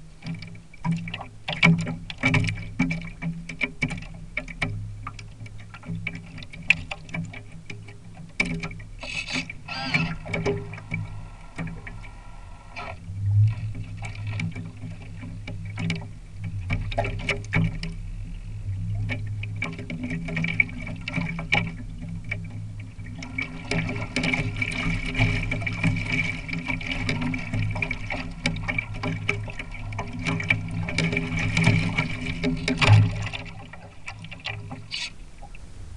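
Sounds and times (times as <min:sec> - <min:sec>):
water splashing against boat hulls: 0:00.0 - 0:35.6
steady low hum: 0:00.0 - 0:35.9
small knocks: 0:25.2 - 0:35.1.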